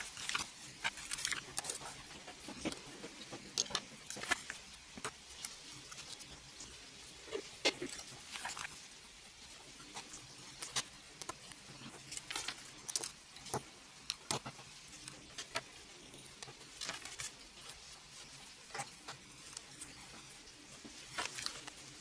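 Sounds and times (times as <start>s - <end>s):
plastic bricks clicking and rattling: 0.0s - 6.3s.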